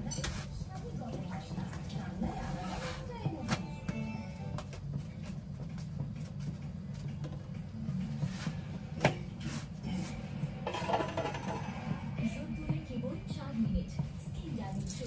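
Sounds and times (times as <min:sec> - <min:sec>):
kitchen utensils clattering: 0:10.6 - 0:12.0.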